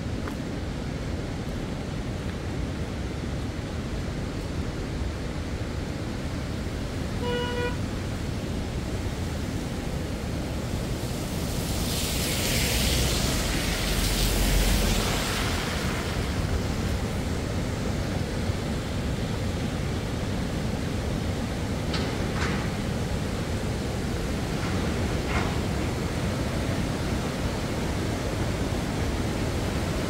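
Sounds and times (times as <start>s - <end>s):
river rushing: 0.0s - 30.0s
car tyres hissing on wet road: 0.1s - 30.0s
short horn beep: 7.2s - 7.8s.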